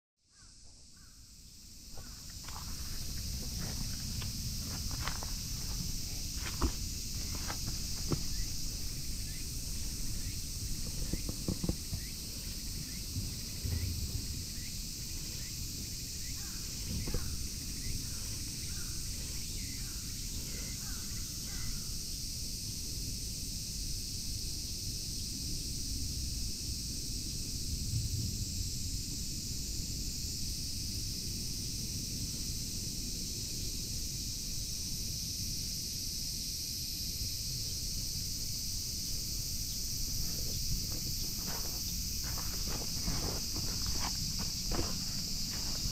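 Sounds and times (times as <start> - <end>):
high insect drone: 0.2 - 45.9
wind rumble on microphone: 2.3 - 21.9, 22.5 - 35.6
soft rustles: 40.0 - 45.9.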